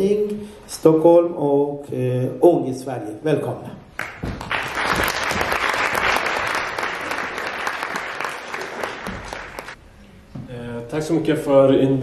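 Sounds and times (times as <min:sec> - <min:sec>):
audience applauding: 0:04.0 - 0:09.8.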